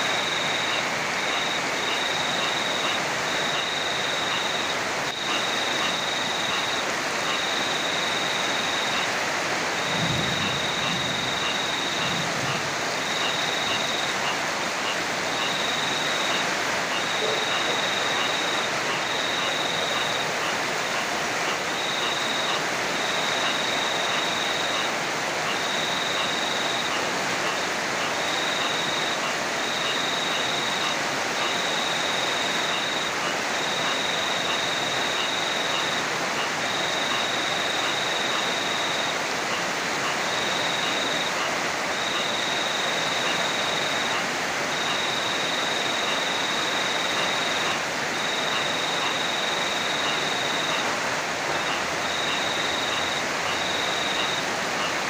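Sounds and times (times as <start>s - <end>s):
heavy rain: 0.0s - 55.0s.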